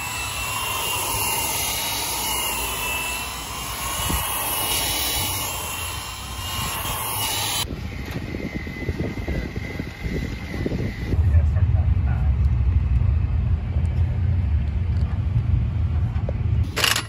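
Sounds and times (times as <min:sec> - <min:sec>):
grinder sanding rubber: 0:00.0 - 0:07.7
uneven low rumbling: 0:07.6 - 0:16.7.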